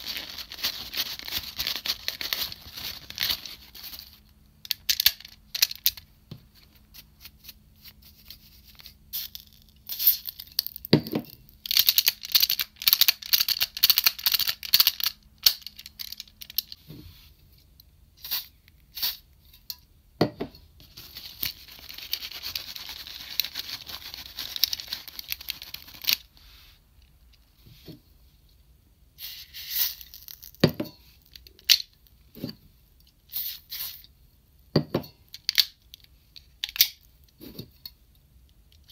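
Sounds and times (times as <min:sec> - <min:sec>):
paper rustling: 0:00.0 - 0:04.2.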